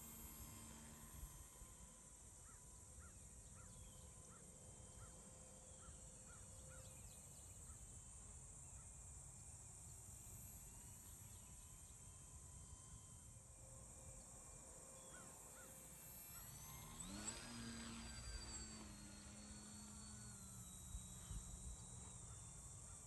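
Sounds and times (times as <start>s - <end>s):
high insect drone: 0.0s - 23.0s.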